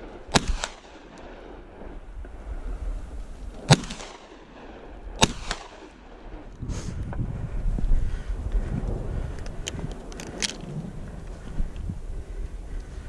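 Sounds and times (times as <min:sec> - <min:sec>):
gunshots: 0:00.0 - 0:01.9, 0:03.6 - 0:06.5.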